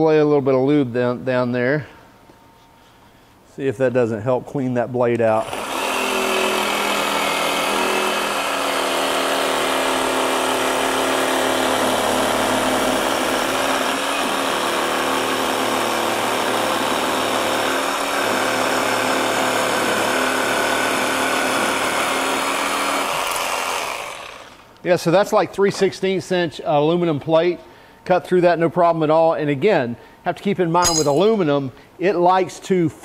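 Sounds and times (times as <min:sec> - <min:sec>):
jigsaw cutting metal: 0:05.4 - 0:24.7.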